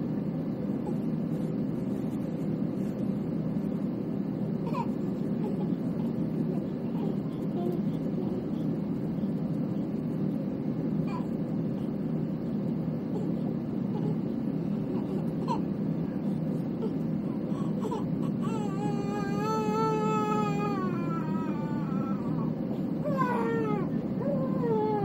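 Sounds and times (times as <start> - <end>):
airliner cabin engine rumble: 0.0 - 25.0
baby whimpering and crying: 4.6 - 8.5, 11.1 - 11.9, 13.1 - 15.7, 16.6 - 25.0.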